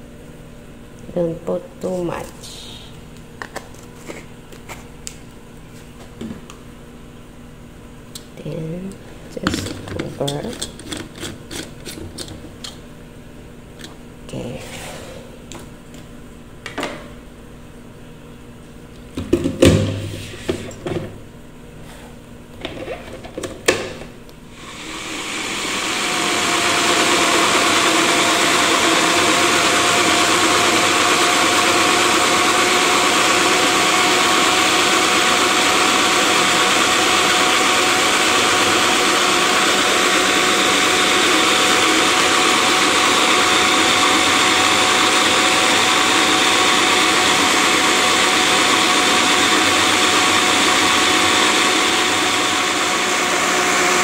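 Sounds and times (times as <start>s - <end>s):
knocks and clicks of blender parts: 19.2s - 20.0s
blender motor running: 24.5s - 54.0s.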